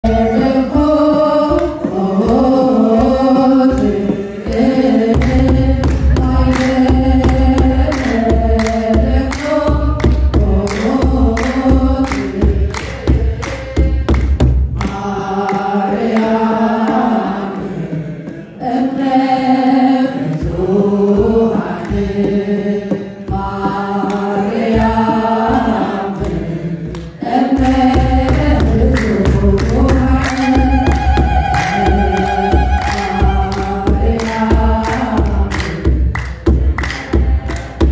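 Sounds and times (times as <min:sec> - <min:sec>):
woman singing a hymn: 0:00.0 - 0:12.8, 0:27.2 - 0:35.8
sharp rhythmic strikes: 0:00.0 - 0:37.9.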